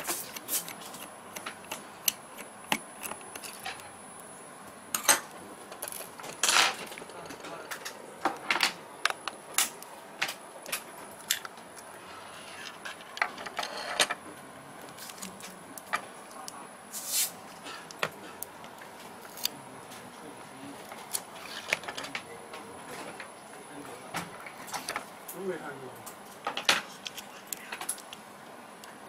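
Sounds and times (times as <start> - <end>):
plastic parts clicking: 0.0 - 3.9.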